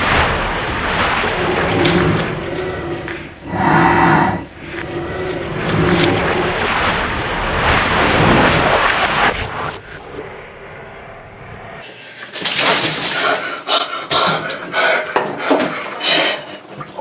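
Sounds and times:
water pouring and splashing: 11.8s - 17.0s.

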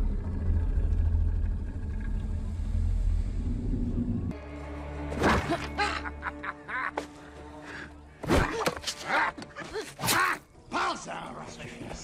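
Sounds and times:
low score drone: 0.0s - 5.1s.

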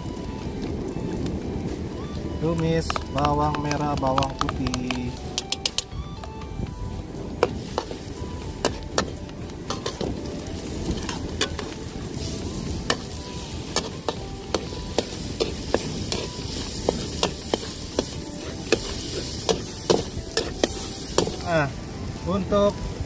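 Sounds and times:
food sizzling in oil: 0.0s - 23.0s
metal spatula scraping a wok: 7.5s - 21.4s.

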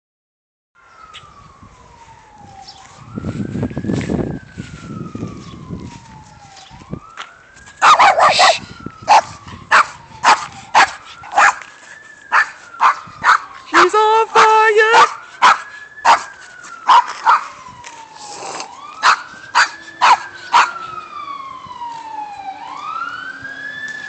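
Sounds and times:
emergency siren wailing: 0.8s - 24.0s
dog barking: 7.8s - 11.6s, 12.3s - 16.3s, 16.9s - 17.5s, 19.0s - 20.8s.

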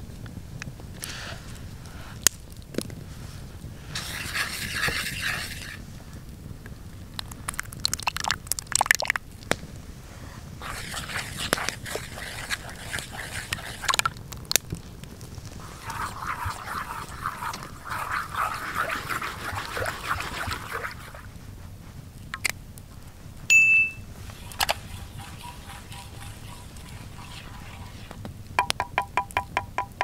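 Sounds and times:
wet stirring and scraping: 3.8s - 6.0s, 10.0s - 22.5s, 24.0s - 30.0s
liquid pouring into pan: 10.6s - 14.1s, 15.6s - 21.3s, 24.2s - 28.2s.

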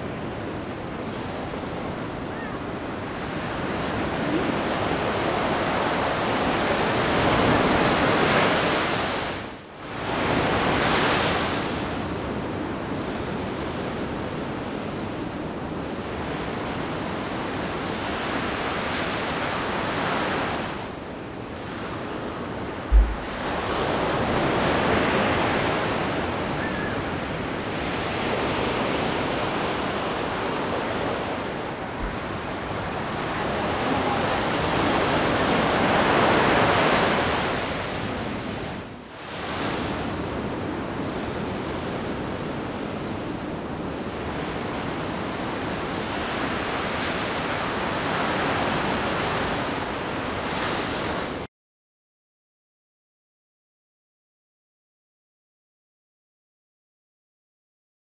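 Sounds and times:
ocean surf breaking: 0.0s - 12.1s, 21.6s - 43.4s
low thump: 22.9s - 23.4s.

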